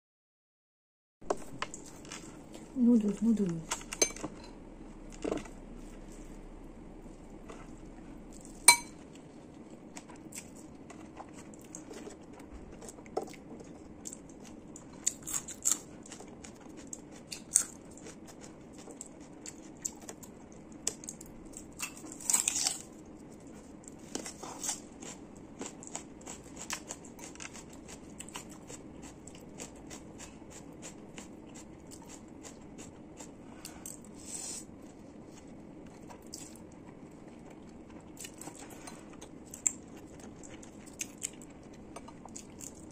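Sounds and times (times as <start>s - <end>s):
metal fork clinking ceramic bowl: 4.0s - 4.5s, 8.7s - 9.0s
slurping and chewing noodles: 7.3s - 42.9s.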